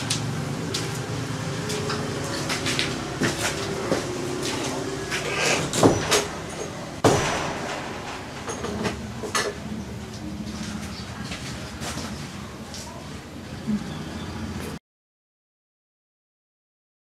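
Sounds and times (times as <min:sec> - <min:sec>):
steady mechanical hum: 0:00.0 - 0:14.8
knocks and clicks: 0:05.6 - 0:10.8.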